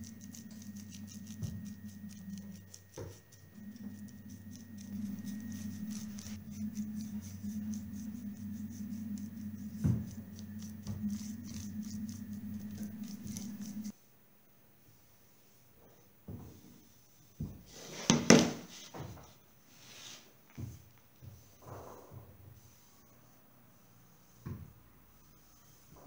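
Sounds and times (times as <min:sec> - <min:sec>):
paintbrush bristle strokes: 0:00.0 - 0:14.1, 0:19.7 - 0:20.8, 0:22.5 - 0:24.4
steady low hum: 0:00.0 - 0:14.1.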